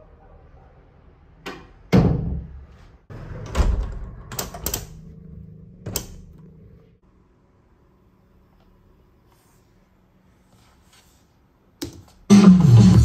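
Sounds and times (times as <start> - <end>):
door closing thud: 3.4 - 4.2.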